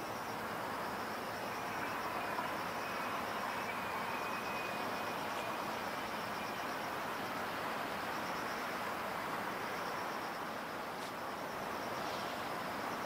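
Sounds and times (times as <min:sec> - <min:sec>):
insects chirping: 0:00.0 - 0:13.0
rushing background noise: 0:00.0 - 0:13.0.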